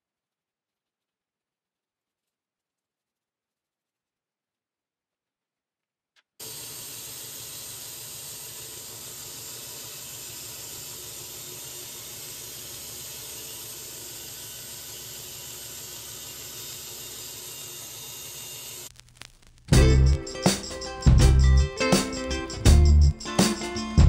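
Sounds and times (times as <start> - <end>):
bandsaw cutting foam: 6.4 - 18.9.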